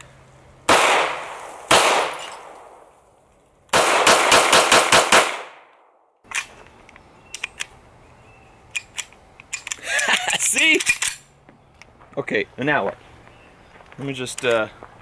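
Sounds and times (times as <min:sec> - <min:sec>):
rapid pistol shots: 0:00.7 - 0:02.7, 0:03.7 - 0:05.7
pistol shots with echo: 0:00.7 - 0:02.8, 0:03.7 - 0:06.0
metallic clicks of pistol handling: 0:06.2 - 0:07.8, 0:08.7 - 0:11.9.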